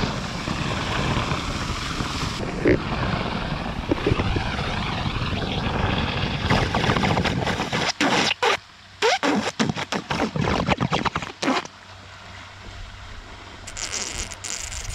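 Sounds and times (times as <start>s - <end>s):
suction hose rushing water: 0.0s - 11.7s, 13.6s - 14.9s.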